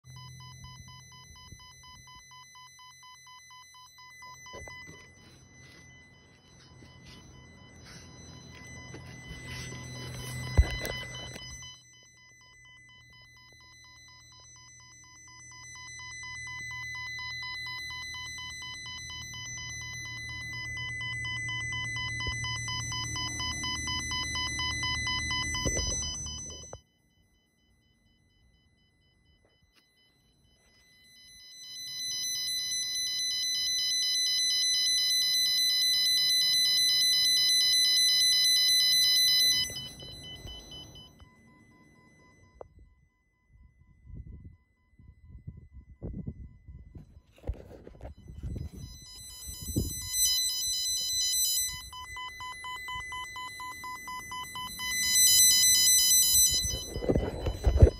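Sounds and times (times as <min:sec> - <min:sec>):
high-pitched pulsing test tone: 0:00.0 - 0:26.8, 0:43.8 - 0:57.9.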